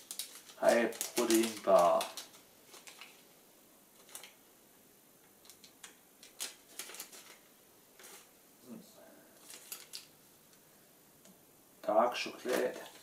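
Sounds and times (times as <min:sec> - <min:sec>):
plastic wrapper crinkling: 0:00.0 - 0:04.4, 0:05.4 - 0:08.3, 0:09.4 - 0:10.2, 0:12.2 - 0:13.0.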